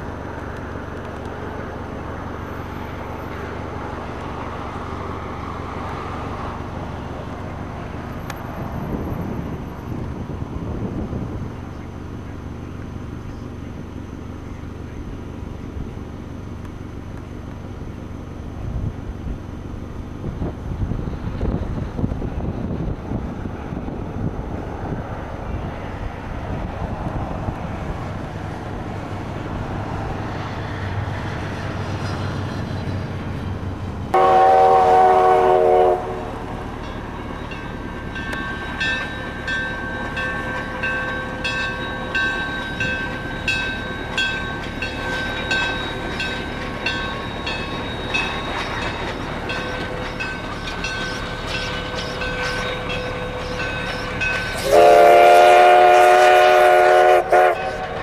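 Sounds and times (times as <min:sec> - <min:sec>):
car road and wind rumble: 0:00.0 - 0:34.2
steam locomotive whistle: 0:34.1 - 0:36.5, 0:54.2 - 0:58.0
train bell ringing: 0:34.2 - 0:58.0.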